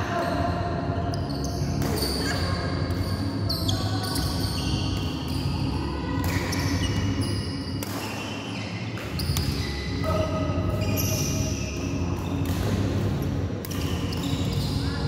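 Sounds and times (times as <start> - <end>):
shoes squeaking on court: 1.1 - 5.5, 6.2 - 12.8, 13.6 - 15.0
rackets hitting shuttlecock: 7.7 - 8.4, 12.4 - 12.9, 13.6 - 14.6.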